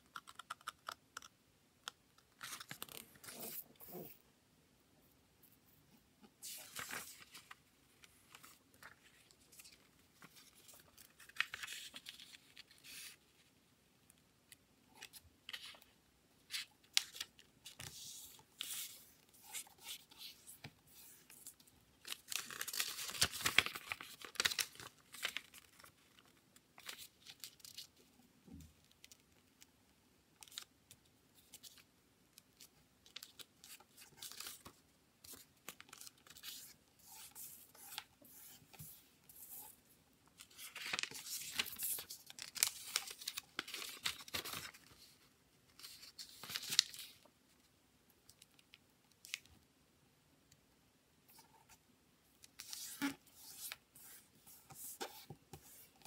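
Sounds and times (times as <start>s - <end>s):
paper rustling and crinkling: 6.4s - 13.5s, 16.5s - 27.9s, 40.4s - 47.3s.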